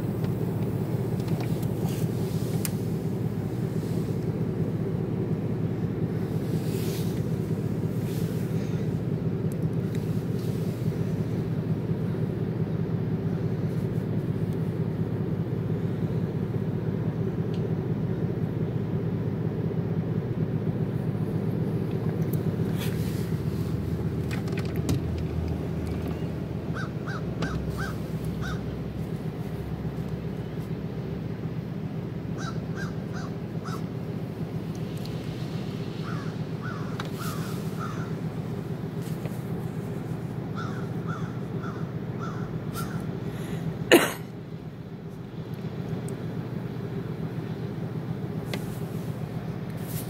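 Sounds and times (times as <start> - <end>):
steady low hum: 0.0 - 50.0
crow cawing: 26.7 - 28.7, 32.4 - 33.9, 36.0 - 38.2, 40.6 - 43.1.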